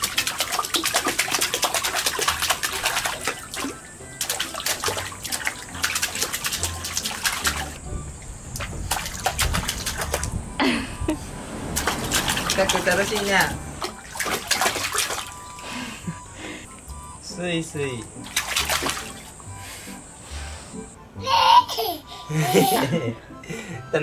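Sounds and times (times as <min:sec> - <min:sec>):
hands splashing water: 0:00.0 - 0:07.8, 0:08.6 - 0:10.3, 0:11.7 - 0:15.6, 0:18.2 - 0:19.3.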